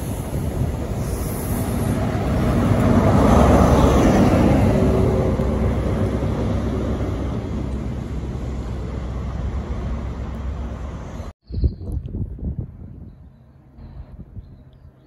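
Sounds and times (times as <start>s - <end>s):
diesel train passing: 0.0s - 11.3s.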